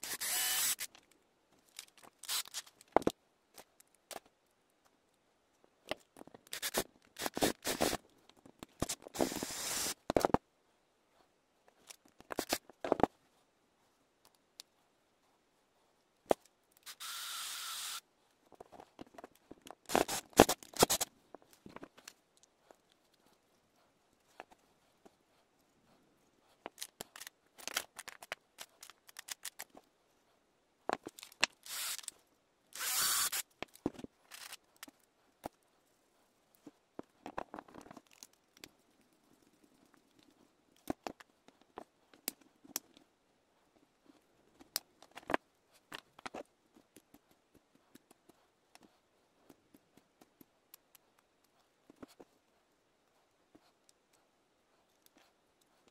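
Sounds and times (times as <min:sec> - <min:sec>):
small parts clicking and scraping: 0:00.0 - 0:04.4, 0:05.9 - 0:10.4, 0:11.7 - 0:13.1, 0:16.3 - 0:23.3, 0:26.5 - 0:29.9, 0:30.9 - 0:35.6, 0:36.5 - 0:43.0.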